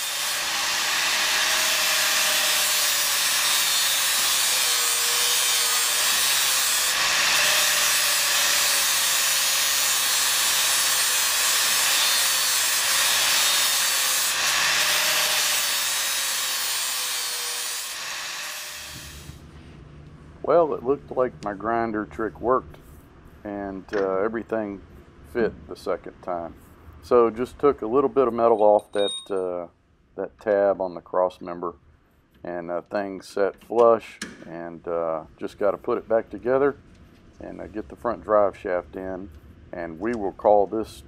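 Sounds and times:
angle grinder grinding metal: 0.0 - 19.4, 28.5 - 29.4.

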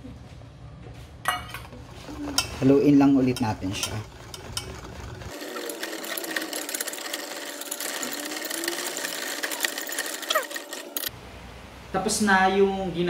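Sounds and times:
whisk clicking against metal pot: 3.2 - 11.0.

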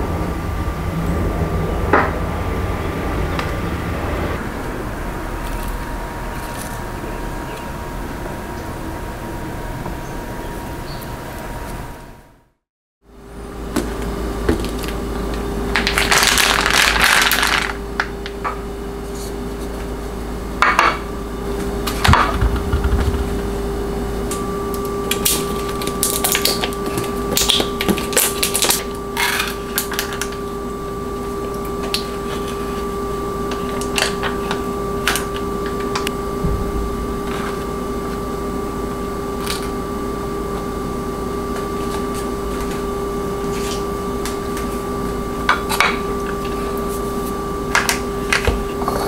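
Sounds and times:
steady hum: 0.0 - 49.0
foil lid crinkling: 15.8 - 18.2.

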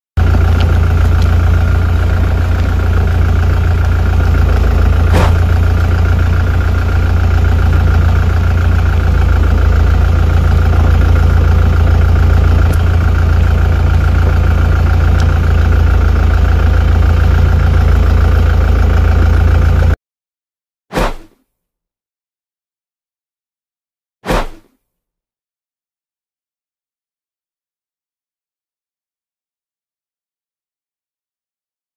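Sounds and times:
engine idling with low hum: 0.2 - 20.0.

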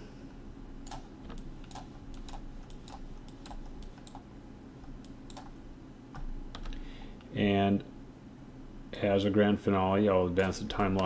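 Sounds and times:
keyboard keys clicking: 10.8 - 11.0.

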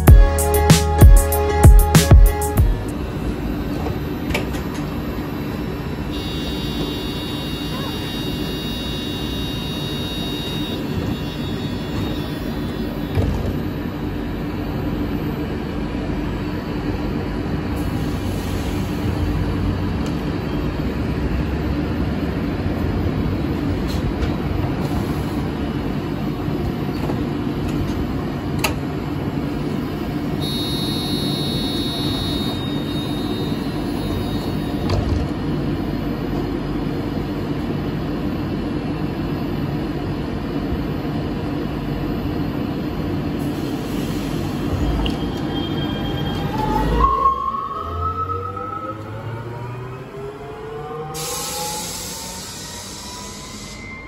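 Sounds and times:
tram equipment humming: 0.0 - 54.0
brief high electronic tone: 30.4 - 34.8.

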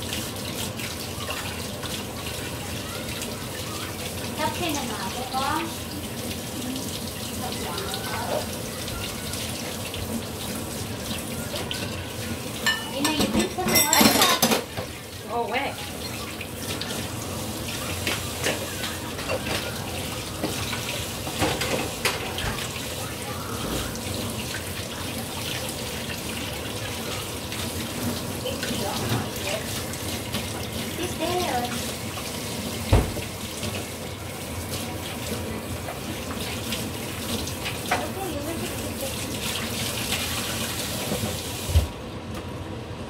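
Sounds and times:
tap water running into sink: 0.0 - 42.5
tap running into sink: 17.7 - 22.8, 31.6 - 33.9, 40.1 - 42.0.

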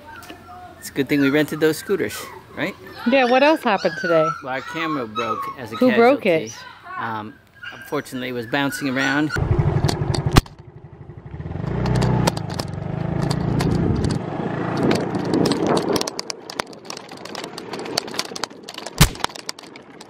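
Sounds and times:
motor scooter engine running: 9.4 - 16.2
clicks and rattles: 11.6 - 20.0.

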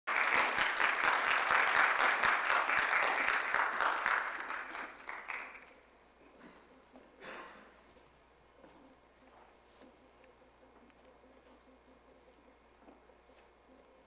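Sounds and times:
audience applauding: 0.1 - 5.8.

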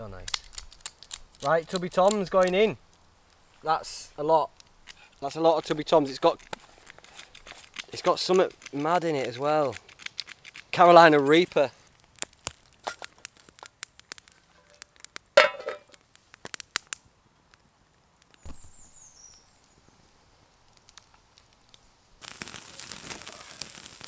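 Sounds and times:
wood fire crackling and popping: 0.0 - 24.0
meat sizzling on a grill: 20.3 - 24.0.

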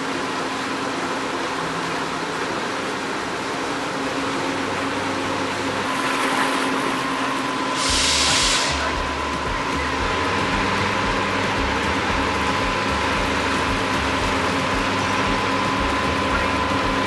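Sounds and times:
mechanical hum: 0.0 - 17.0
water churning beside a hull: 0.0 - 17.0
loud hiss: 7.5 - 17.0.

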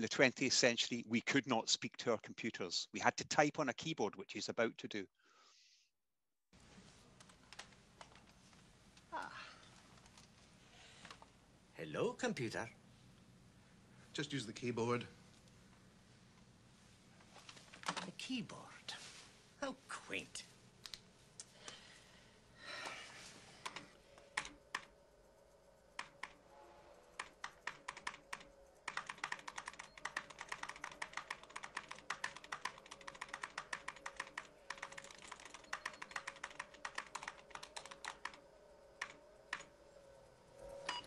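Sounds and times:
faint steady hum: 6.6 - 41.0
typing on computer keyboard: 23.6 - 24.9, 26.0 - 26.4, 27.1 - 38.4, 39.0 - 39.7.

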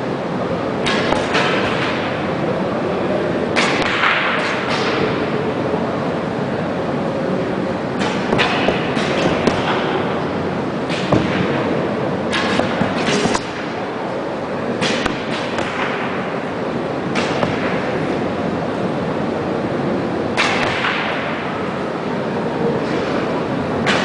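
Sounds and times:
arrows striking target: 0.8 - 2.1, 3.6 - 5.0, 8.0 - 10.1, 10.8 - 11.6, 12.3 - 13.8, 14.8 - 16.4, 17.1 - 18.0.

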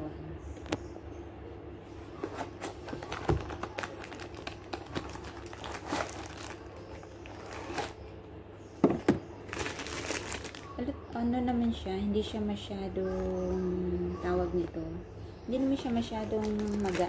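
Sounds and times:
plastic bag crinkling: 2.2 - 8.1, 9.4 - 10.8, 15.6 - 17.0.

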